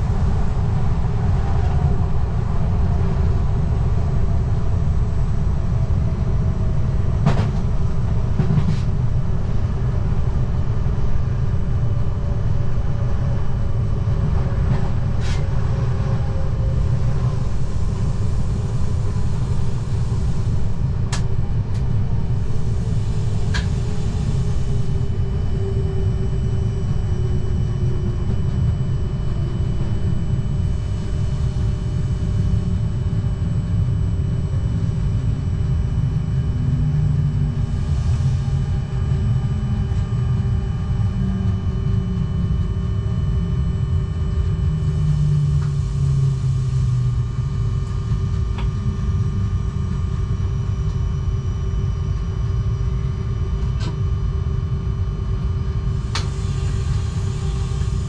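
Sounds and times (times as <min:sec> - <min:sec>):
train wheels rumbling on track: 0:00.0 - 0:32.9.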